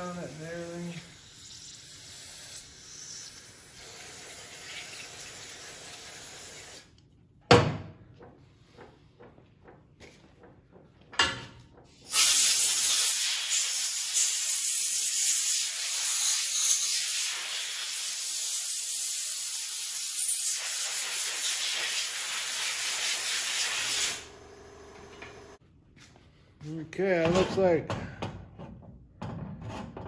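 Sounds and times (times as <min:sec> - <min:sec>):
pressurized spray hissing: 0:12.1 - 0:24.2.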